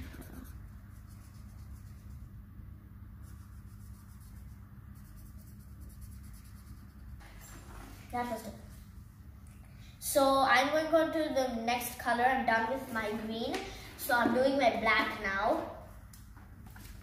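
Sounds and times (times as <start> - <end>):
markers scribbling on paper: 0.0 - 2.3, 3.2 - 7.2.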